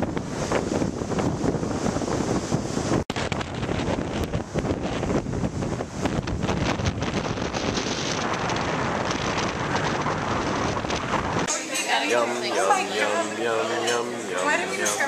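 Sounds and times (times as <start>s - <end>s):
surf breaking on stony shore: 0.0s - 11.5s
wind buffeting microphone: 0.0s - 11.5s.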